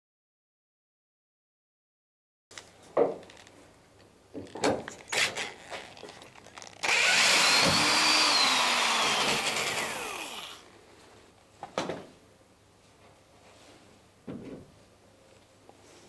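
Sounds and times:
cordless drill whining: 0:06.8 - 0:10.7.

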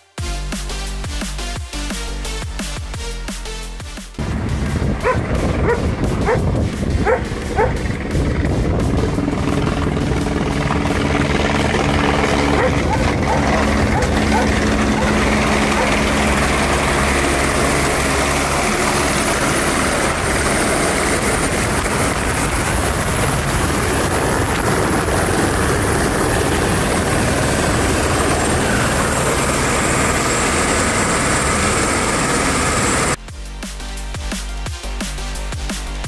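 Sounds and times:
rotor downwash on microphone: 0:04.2 - 0:10.9, 0:11.6 - 0:20.2
helicopter rotor and engine: 0:04.2 - 0:33.2
high turbine whine: 0:04.2 - 0:33.2.

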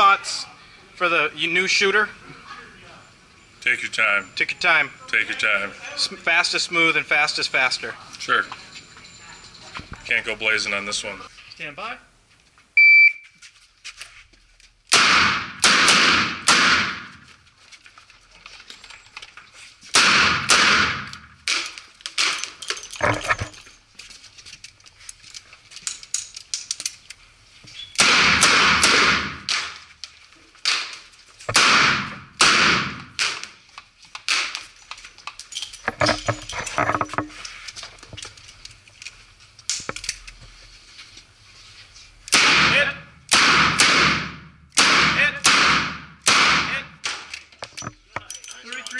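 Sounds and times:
revolver shots echoing indoors: 0:14.9 - 0:17.2, 0:20.0 - 0:22.5, 0:28.0 - 0:29.8, 0:30.7 - 0:33.6, 0:42.3 - 0:47.3.

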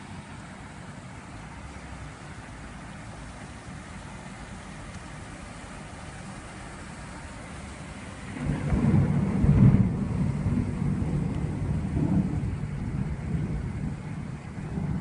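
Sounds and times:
heavy downpour: 0:00.0 - 0:15.0
thunder rumbling: 0:07.5 - 0:15.0.

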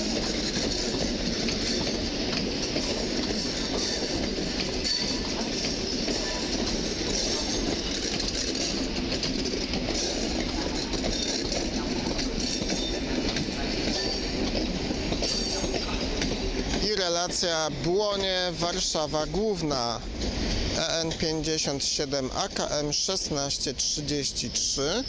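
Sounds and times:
train wheels rumbling on track: 0:00.0 - 0:25.0.

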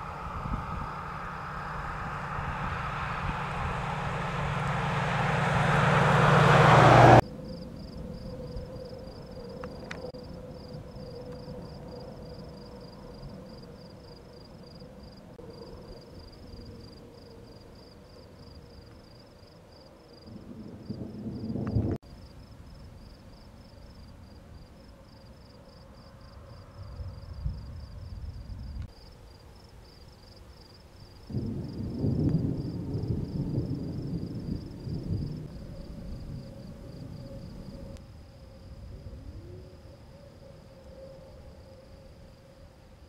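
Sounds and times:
thunder rumbling: 0:00.0 - 0:07.2, 0:20.3 - 0:22.0, 0:31.3 - 0:38.0
low rumbling background noise: 0:00.0 - 0:09.6
crickets chirping: 0:00.0 - 0:43.0.

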